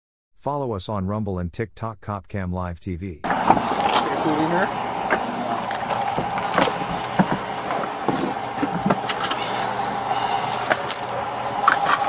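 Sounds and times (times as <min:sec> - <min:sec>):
car hum: 0:03.3 - 0:12.0.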